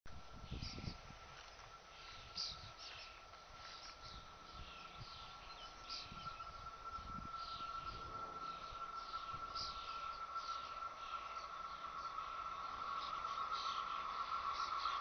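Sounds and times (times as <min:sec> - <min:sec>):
steady high whine: 0:00.1 - 0:15.0
small birds chirping: 0:00.3 - 0:15.0
irregular low rumble: 0:03.5 - 0:15.0.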